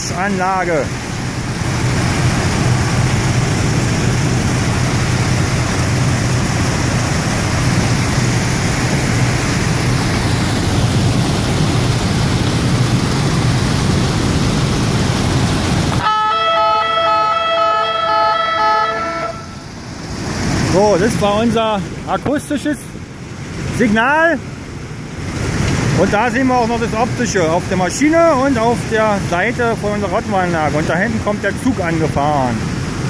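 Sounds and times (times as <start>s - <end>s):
washing plant machinery rushing: 0.0s - 16.1s, 19.0s - 33.0s
multi-tone warning horn: 16.0s - 19.7s.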